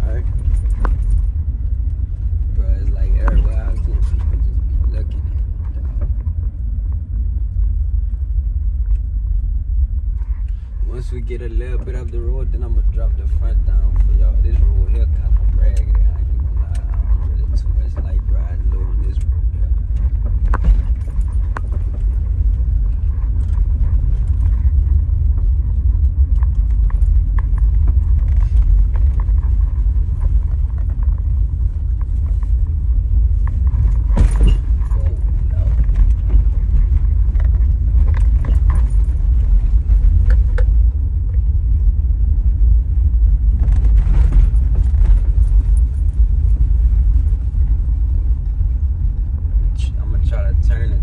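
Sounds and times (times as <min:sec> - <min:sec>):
car road and engine rumble: 0:00.0 - 0:51.0
knocks and rattles: 0:33.4 - 0:40.8.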